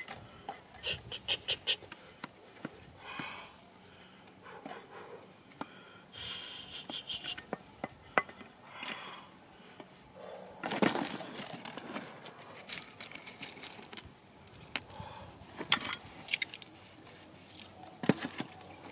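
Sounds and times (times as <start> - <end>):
stones and gravel clattering: 10.6 - 14.9.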